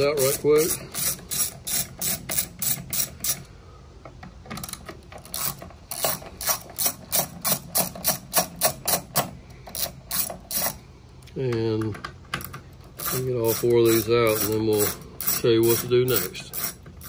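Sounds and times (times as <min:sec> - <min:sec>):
ratcheting screwdriver clicking: 0:04.5 - 0:10.8.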